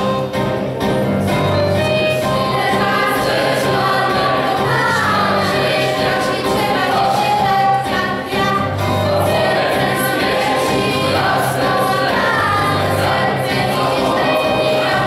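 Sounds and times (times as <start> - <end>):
youth choir singing: 1.6 - 15.0.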